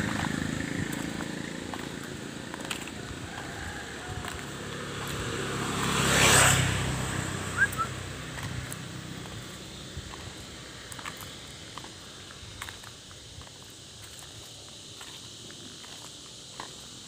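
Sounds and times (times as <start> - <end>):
motor scooter passing by: 0.0 - 12.4.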